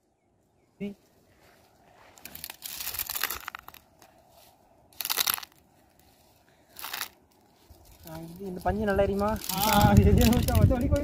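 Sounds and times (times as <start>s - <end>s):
dry brushwood crackling underfoot: 0.4s - 11.0s.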